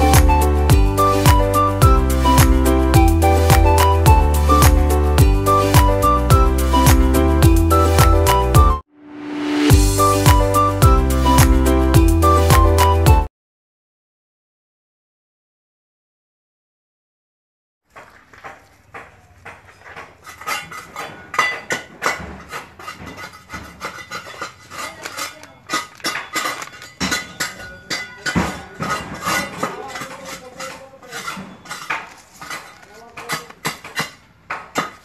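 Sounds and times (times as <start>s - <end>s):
scraping on concrete: 17.9s - 35.0s.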